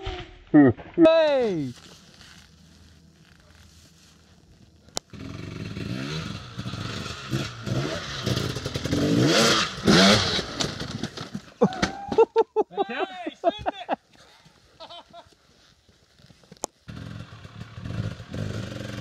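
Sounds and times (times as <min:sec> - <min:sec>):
dirt bike engine revving: 0:05.1 - 0:11.1, 0:16.9 - 0:19.0.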